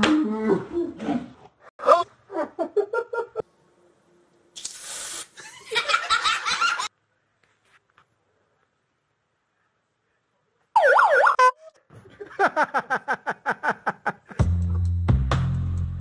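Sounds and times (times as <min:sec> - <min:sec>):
people laughing: 0:01.8 - 0:03.4, 0:05.4 - 0:06.9, 0:12.0 - 0:14.4
brief hiss: 0:04.6 - 0:05.4.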